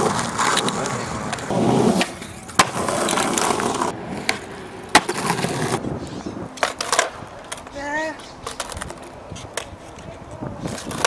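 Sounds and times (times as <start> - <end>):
skateboard clacking on ground: 0.0 - 5.8, 6.5 - 11.0
skateboard wheels rolling on asphalt: 0.0 - 11.0.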